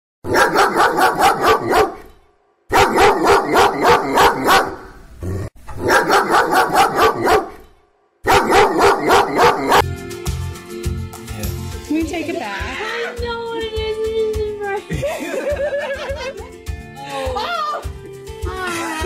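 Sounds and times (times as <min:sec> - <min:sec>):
dog barking: 0:00.3 - 0:02.1, 0:02.7 - 0:05.0, 0:05.8 - 0:07.6, 0:08.2 - 0:09.9.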